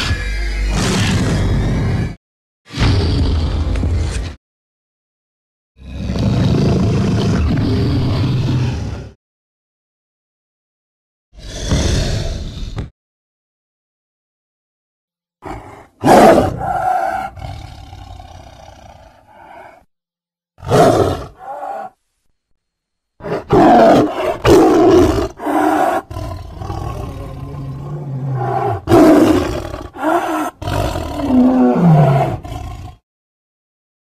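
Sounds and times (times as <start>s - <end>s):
creature roars and growls: 5.8s - 9.2s, 11.4s - 12.9s, 15.4s - 19.9s, 20.6s - 22.0s, 23.2s - 33.0s.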